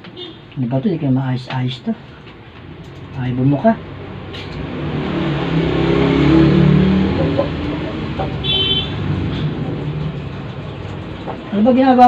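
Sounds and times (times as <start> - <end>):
vehicle passing by: 2.6 - 12.0.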